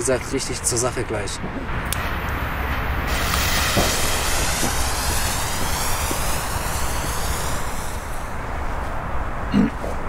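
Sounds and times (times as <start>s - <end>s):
low rumble: 1.7s - 8.8s
fireworks fuse hissing: 1.7s - 9.4s.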